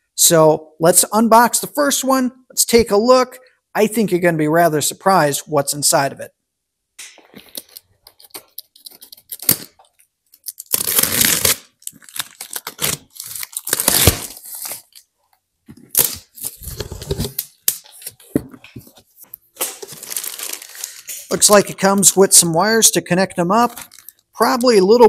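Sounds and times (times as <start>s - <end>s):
packing tape ripping: 7.4s - 15.1s, 15.9s - 18.2s, 19.6s - 21.3s.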